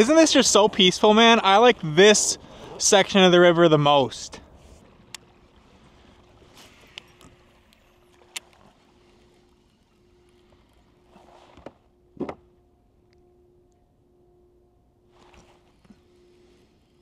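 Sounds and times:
faint low hum: 0.0 - 17.0
light clicks and knocks from boat: 4.6 - 12.6.

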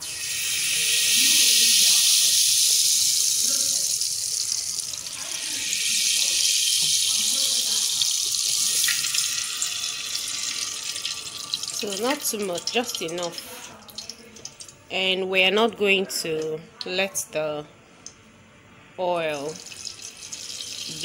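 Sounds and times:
oil sizzling in a hot pot: 0.0 - 14.8, 19.3 - 21.0.

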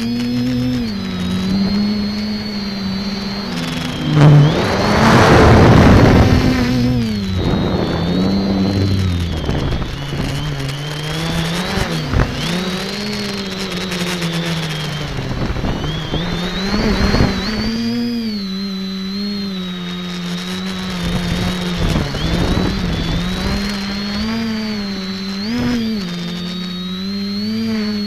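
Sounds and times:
drone motors buzzing whine: 0.0 - 28.0
loud rushing noise: 0.8 - 11.6.

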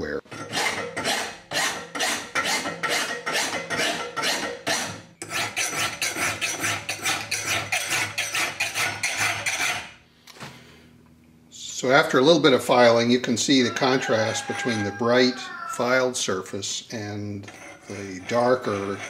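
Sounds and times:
hand file rasping on iron: 0.3 - 10.0, 17.4 - 19.0.

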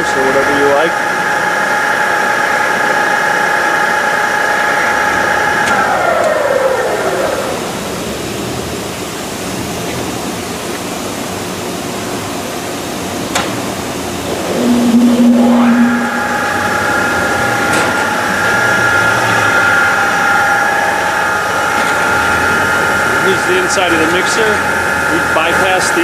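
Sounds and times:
mixer motor whine: 3.6 - 8.8, 14.2 - 26.0.

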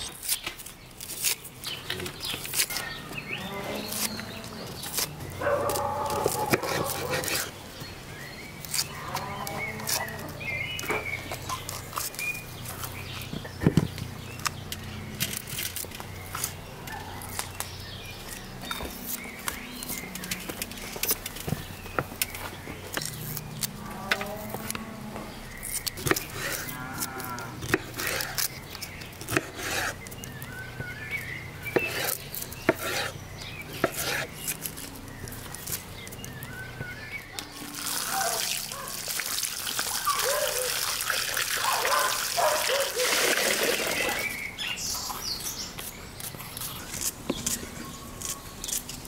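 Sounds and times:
cattle mooing: 23.7 - 25.3, 26.5 - 27.7.

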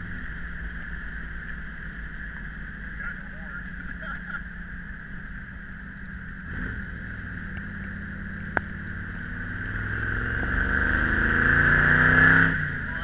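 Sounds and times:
car engine accelerating: 0.0 - 13.0
wind and road noise: 0.0 - 13.0.

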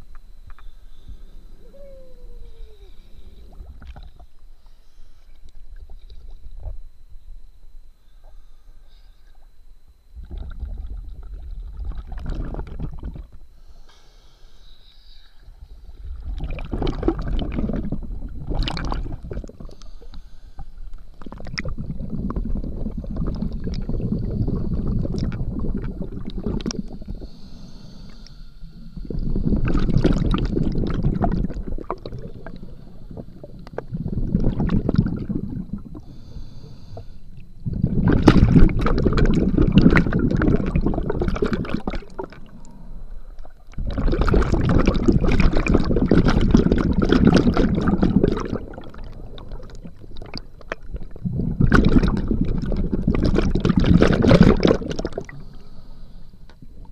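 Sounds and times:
underwater exhaled breath bubbling: 0.0 - 6.8, 10.2 - 56.9.

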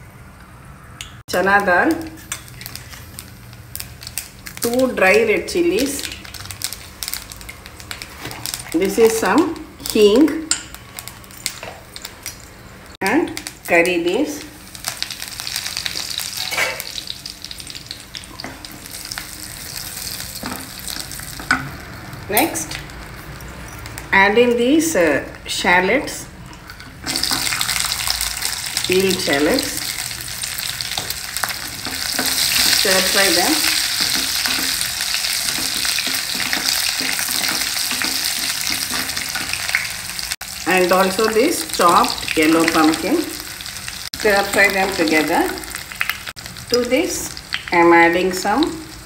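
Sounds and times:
hot oil sizzling and crackling: 0.0 - 49.0
wooden spatula stirring pan: 30.8 - 39.9.

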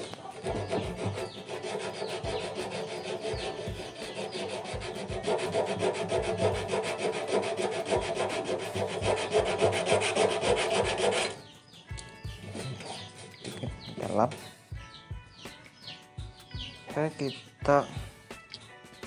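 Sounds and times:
sandpaper scraping metal: 0.0 - 11.4.

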